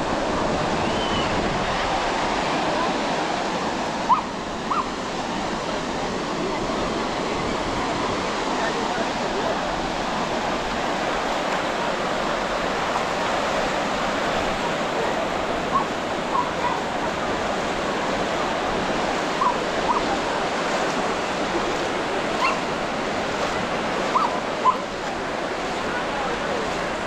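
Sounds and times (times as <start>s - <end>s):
ocean surf breaking: 0.0s - 27.0s
dog barking: 4.1s - 4.9s, 15.7s - 16.8s, 19.4s - 20.1s, 22.4s - 22.7s, 24.1s - 24.9s.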